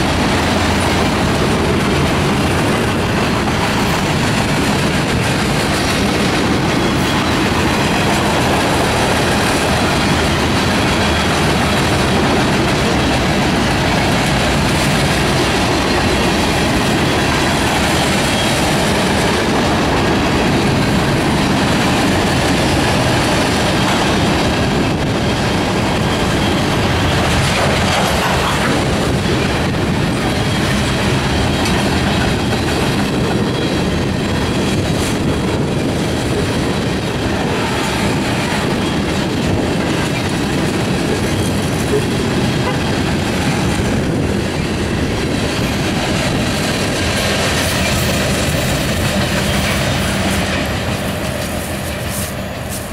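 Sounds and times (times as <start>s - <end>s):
freight train wheels rolling: 0.0s - 52.9s.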